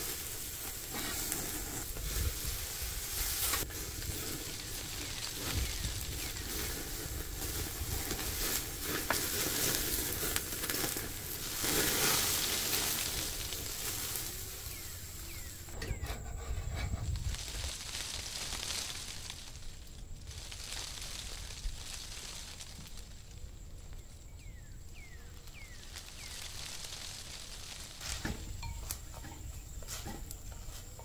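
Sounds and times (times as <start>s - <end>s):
meat sizzling on grill: 0.0s - 15.8s, 24.9s - 31.0s.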